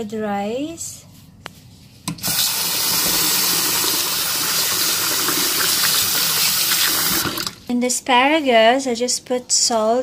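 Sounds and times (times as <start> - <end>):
tap water running into pot: 2.2 - 7.6.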